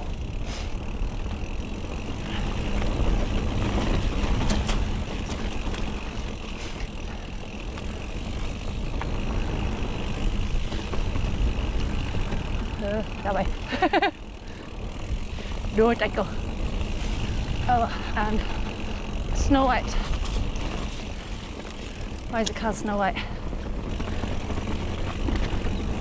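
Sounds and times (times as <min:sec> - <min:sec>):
bike rattling and clicking: 0:00.0 - 0:26.0
tyre and wind noise: 0:00.0 - 0:26.0.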